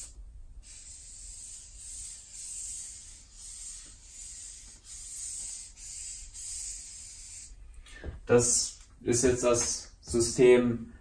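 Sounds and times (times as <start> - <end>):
marker drawing on paper: 0.0 - 7.6.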